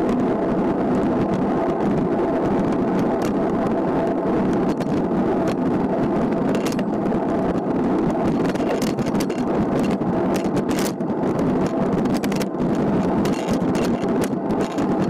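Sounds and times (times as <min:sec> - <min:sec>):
tyres rolling on asphalt: 0:00.0 - 0:15.0
wind rushing over microphone: 0:00.0 - 0:15.0
small clicks: 0:11.6 - 0:15.0.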